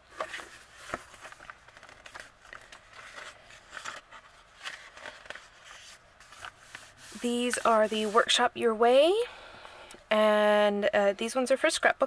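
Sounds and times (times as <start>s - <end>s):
paper pages rustling: 0.0s - 8.4s.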